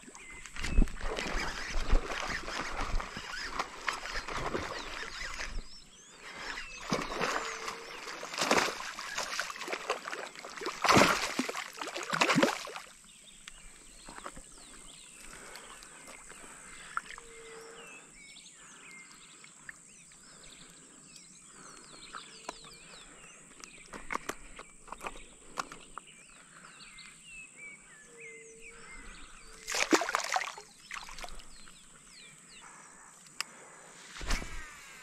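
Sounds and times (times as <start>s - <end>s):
fish splashing: 6.6s - 13.0s, 29.6s - 31.5s.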